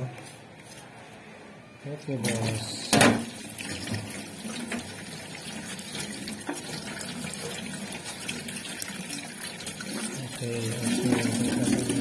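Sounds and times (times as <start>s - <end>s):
tap water running and splashing: 2.2s - 12.0s.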